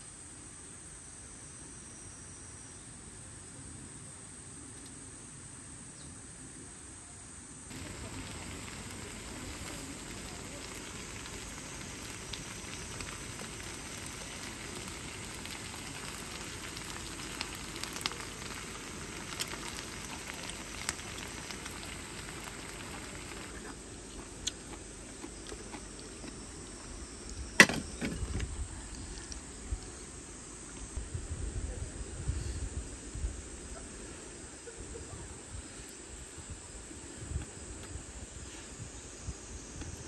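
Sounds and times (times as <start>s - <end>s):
sauce sizzling and bubbling: 7.7s - 28.0s.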